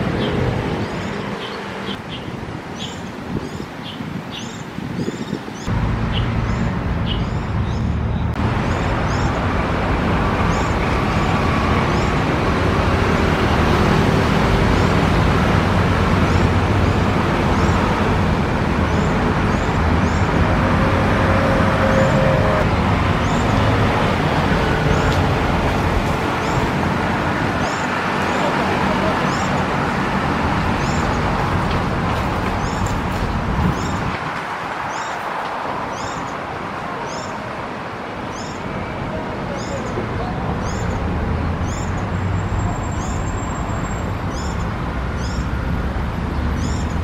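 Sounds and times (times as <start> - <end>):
road traffic rumble: 0.0 - 47.0.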